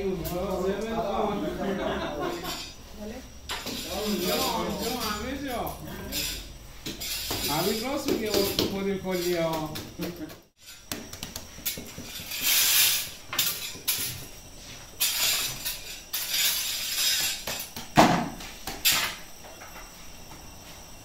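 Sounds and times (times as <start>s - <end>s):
iron tools scraping in oven: 1.1s - 9.6s, 11.6s - 17.7s.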